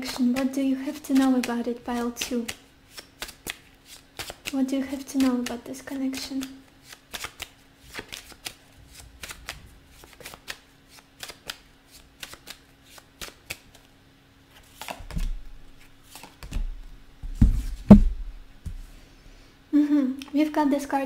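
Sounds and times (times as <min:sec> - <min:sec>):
cards being shuffled: 0:00.2 - 0:13.9, 0:14.5 - 0:18.0
louder thuds: 0:17.2 - 0:18.8.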